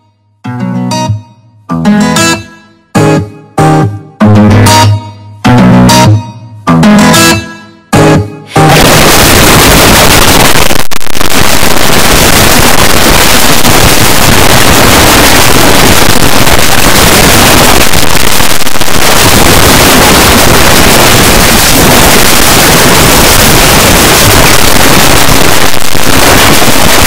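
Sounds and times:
harsh distorted static noise: 5.5 - 27.0.

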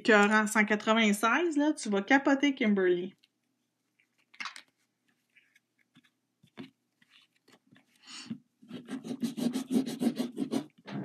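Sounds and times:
cotton pad scrubbing metal plate: 8.7 - 11.0.

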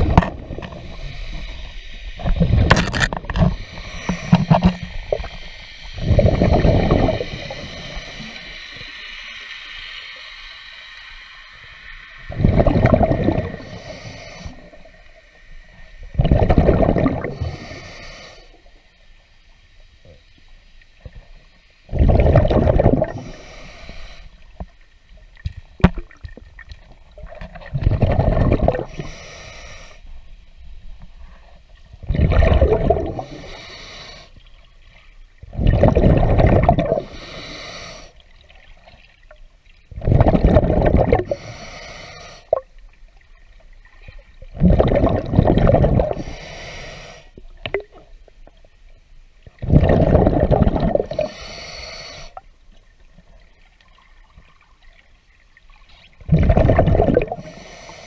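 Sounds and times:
exhaled bubbles gurgling: 0.0 - 8.9, 12.0 - 15.2, 16.0 - 18.0, 21.0 - 23.6, 25.4 - 29.3, 31.9 - 34.0, 35.4 - 39.3, 39.9 - 41.7, 42.4 - 46.6, 49.4 - 52.4, 55.7 - 57.9.

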